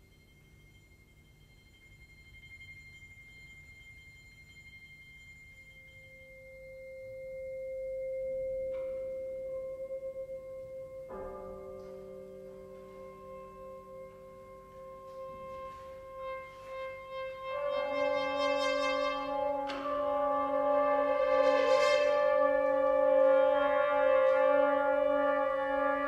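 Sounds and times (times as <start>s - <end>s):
high ringing tone: 0.0s - 26.0s
struck chord ringing: 7.0s - 26.0s
brass and percussion ensemble: 14.4s - 26.0s.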